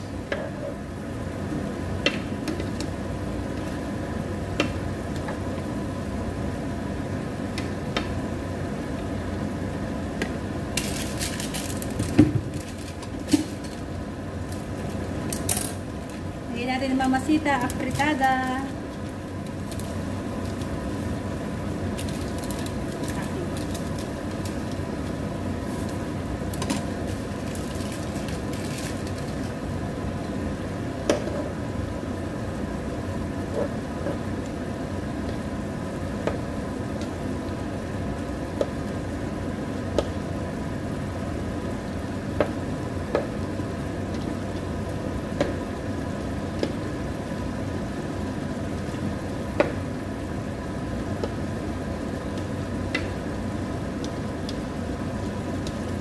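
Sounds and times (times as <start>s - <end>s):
food sizzling in a frying pan: 0.0s - 56.0s
steady hum: 0.0s - 56.0s.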